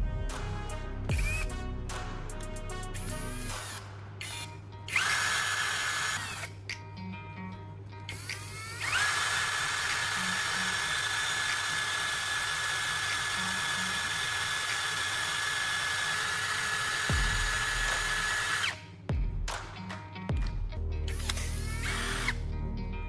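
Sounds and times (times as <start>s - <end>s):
cordless drill whining: 1.1s - 1.5s, 3.0s - 6.6s, 8.1s - 18.8s, 21.1s - 22.4s.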